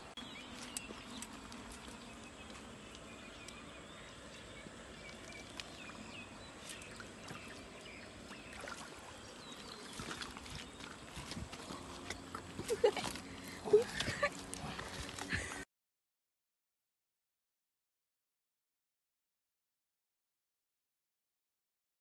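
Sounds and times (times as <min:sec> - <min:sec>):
water splashing and sloshing: 0:00.0 - 0:15.6.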